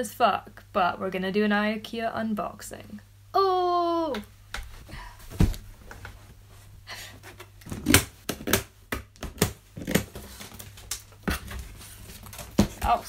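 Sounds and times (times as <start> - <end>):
packing tape being slit: 7.4 - 13.0
knocks and thumps on cardboard: 12.4 - 13.0.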